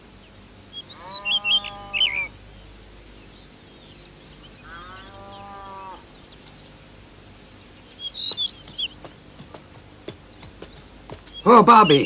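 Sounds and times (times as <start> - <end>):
birds chirping: 0.0 - 12.0
cow mooing: 1.0 - 2.2, 4.6 - 6.1.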